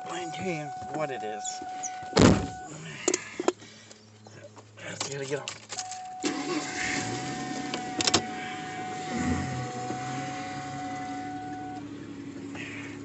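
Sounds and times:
low hum inside car: 0.0 - 3.2, 4.2 - 13.0
steady whine: 5.7 - 13.0.

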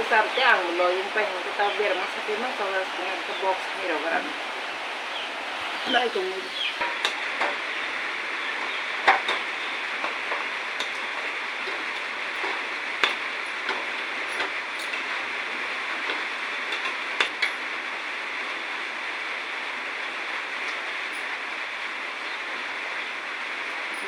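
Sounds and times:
steady hiss: 0.0 - 24.0
metal utensils and pots clinking: 8.6 - 15.2.

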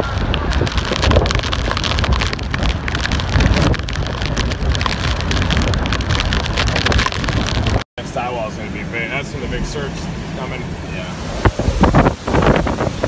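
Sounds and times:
wind buffeting microphone: 0.0 - 7.8, 9.3 - 13.0
heavy rain rushing: 0.0 - 13.0.

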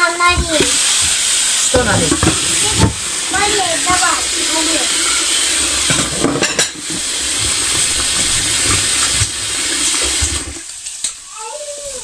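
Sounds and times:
tap running into metal pot: 0.3 - 4.2, 5.8 - 10.6.

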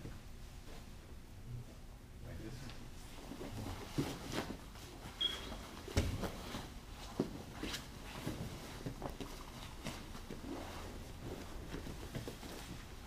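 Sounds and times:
fabric rustling: 3.0 - 13.0
bodies thumping on mat: 3.4 - 12.8
short high squeak: 5.2 - 5.6.

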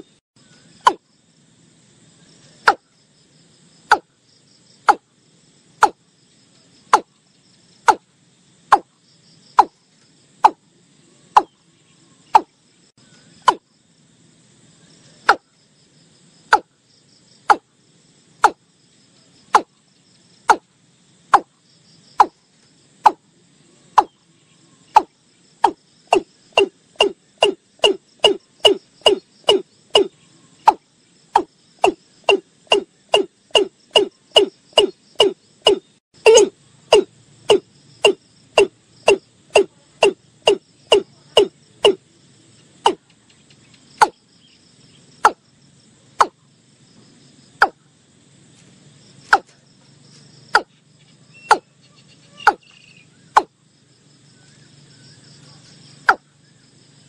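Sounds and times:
bird knocking call: 12.3 - 12.5, 13.4 - 13.6, 25.0 - 30.1, 31.4 - 42.0, 51.4 - 51.7, 52.4 - 52.8.

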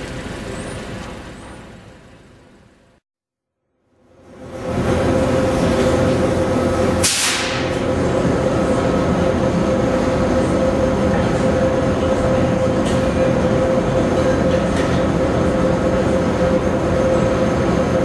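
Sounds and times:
mechanical rumbling drone: 0.0 - 3.0, 3.7 - 18.0
brief high hiss: 7.0 - 7.6.

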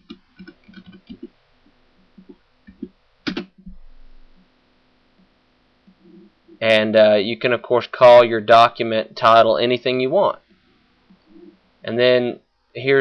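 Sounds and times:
faint keyboard typing: 0.0 - 3.9.

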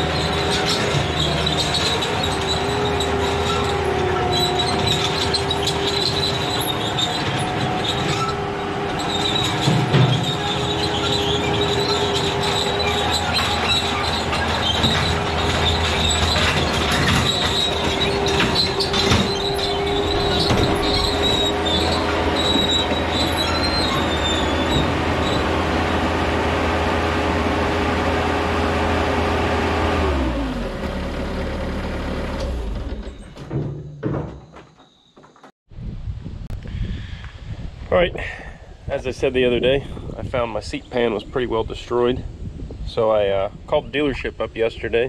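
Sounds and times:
steel tracks clanking: 0.0 - 31.1
diesel engine whine: 0.0 - 33.7.

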